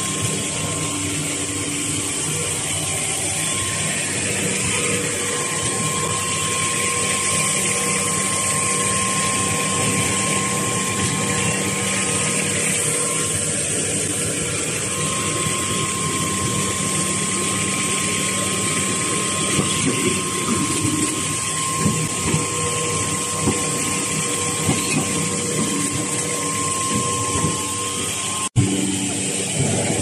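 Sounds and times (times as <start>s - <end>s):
machinery humming with a whine: 0.0s - 30.0s.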